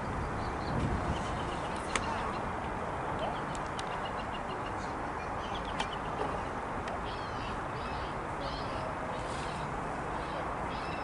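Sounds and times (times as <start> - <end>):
small birds chirping: 3.2 - 11.0.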